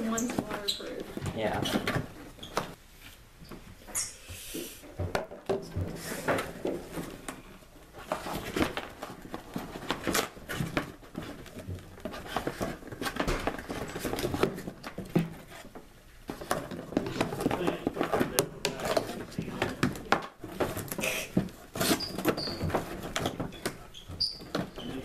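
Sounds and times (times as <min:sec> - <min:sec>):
cardboard packaging rustling: 0:05.9 - 0:25.0.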